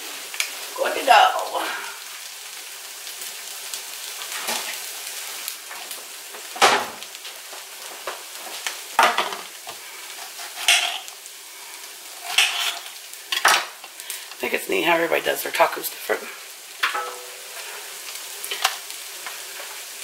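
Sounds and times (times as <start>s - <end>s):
meat sizzling in a pan: 0.0s - 20.0s
kitchen things clattering: 9.0s - 9.5s, 10.2s - 11.1s, 12.2s - 13.8s, 16.8s - 17.8s.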